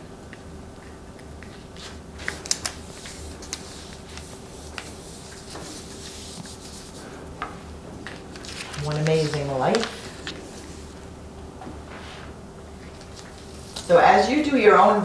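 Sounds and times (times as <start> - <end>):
faint steady hum: 0.0 - 15.0
paper rustling: 1.4 - 7.2, 8.0 - 11.0, 11.9 - 13.9.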